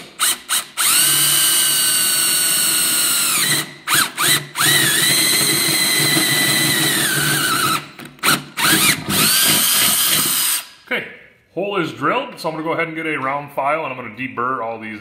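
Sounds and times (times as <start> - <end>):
power drill boring through steel: 0.0 - 10.8.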